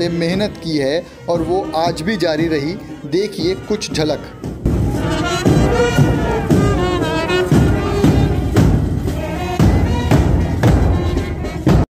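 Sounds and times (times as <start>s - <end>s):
brass band playing a march: 0.0s - 11.9s
bass drum beats: 4.3s - 11.9s.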